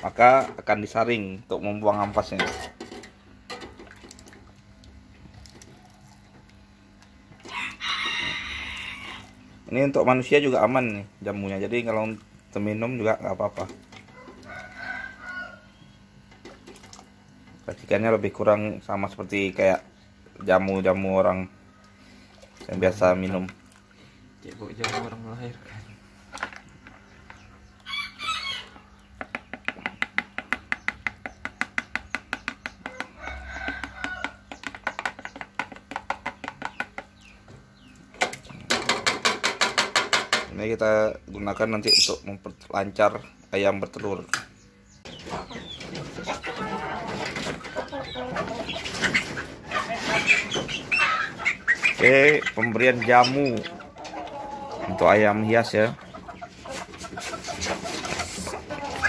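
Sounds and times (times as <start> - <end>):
chicken clucking: 45.0 - 59.0.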